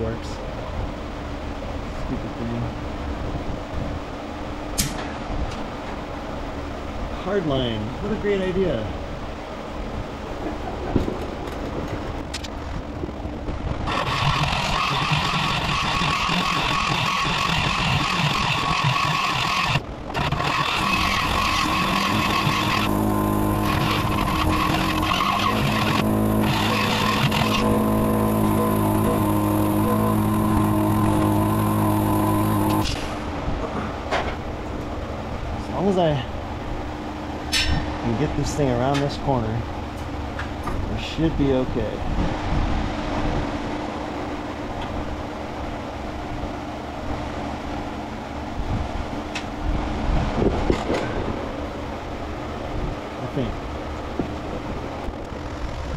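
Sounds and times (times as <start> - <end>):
motor humming: 11.7 - 33.4
die grinder cutting metal: 13.8 - 33.1.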